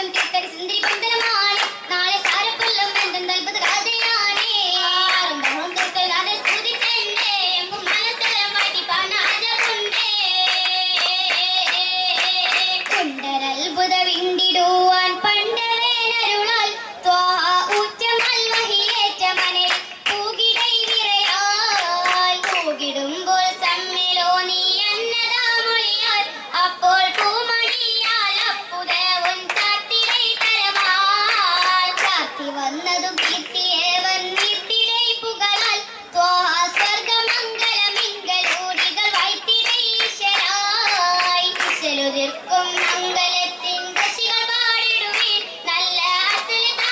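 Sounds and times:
women singing: 0.0 - 46.9
sharp hand claps: 0.1 - 13.3, 17.6 - 22.8, 27.1 - 32.3, 33.0 - 34.8, 35.5 - 35.8, 36.7 - 42.0, 42.6 - 46.9.

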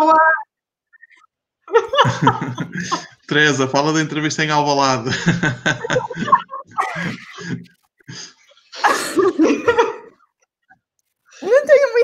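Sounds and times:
women laughing: 1.7 - 3.2, 5.1 - 7.7, 8.8 - 10.2.

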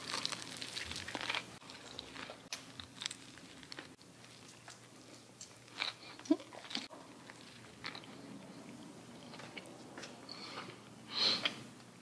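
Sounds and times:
person chewing burger: 0.0 - 9.7.

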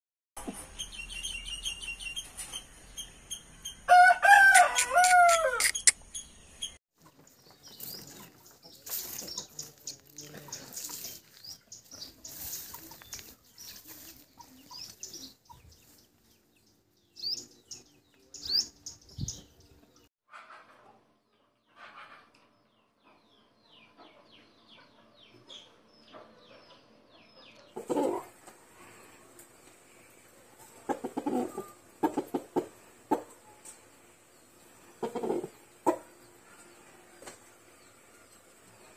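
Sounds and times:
rooster crowing: 3.9 - 5.8.

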